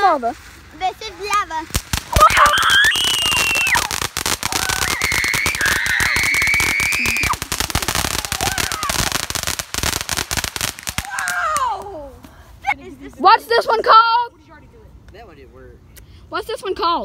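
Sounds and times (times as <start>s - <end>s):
firework crackling: 0.0s - 12.2s.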